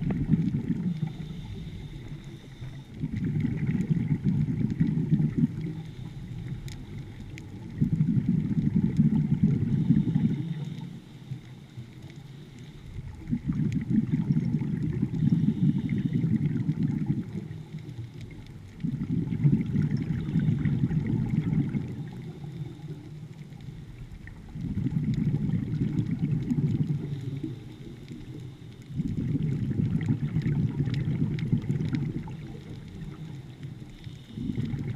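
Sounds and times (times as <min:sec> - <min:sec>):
underwater regulator exhale bubbling: 0:00.0 - 0:34.9.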